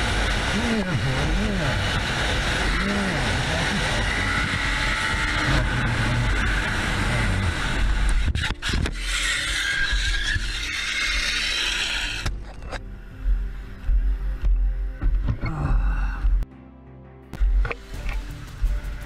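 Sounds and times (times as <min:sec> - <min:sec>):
motorcycle engine riding: 0:00.0 - 0:08.9, 0:17.4 - 0:19.0.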